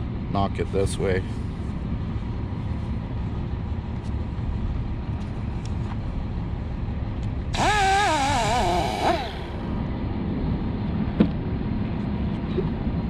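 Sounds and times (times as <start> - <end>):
low engine-like rumble: 0.0 - 13.0
loud hiss with whistling squeal: 7.6 - 9.4.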